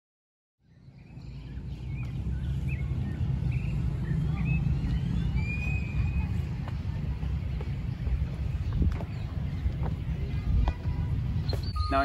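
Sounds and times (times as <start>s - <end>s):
birds chirping: 0.6s - 12.0s
bird whistle: 4.4s - 6.3s, 11.4s - 12.0s.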